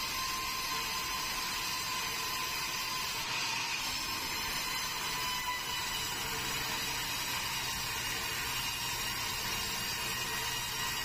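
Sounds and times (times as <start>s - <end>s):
band saw cutting log: 0.0s - 11.0s.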